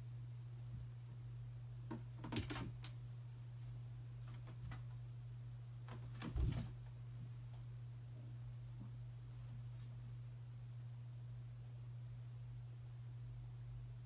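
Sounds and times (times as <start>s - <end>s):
steady low hum: 0.0s - 14.0s
cat scrabbling on carpeted post: 5.9s - 6.9s.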